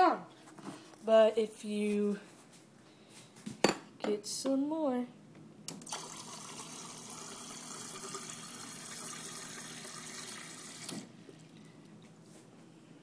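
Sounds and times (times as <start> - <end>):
water stream into a glass: 5.9 - 11.6.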